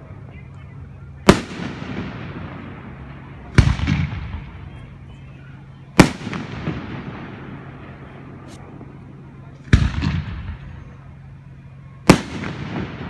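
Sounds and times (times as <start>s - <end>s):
firework shells booming: 1.2s - 5.0s, 5.9s - 9.0s, 9.6s - 11.1s, 12.0s - 13.0s.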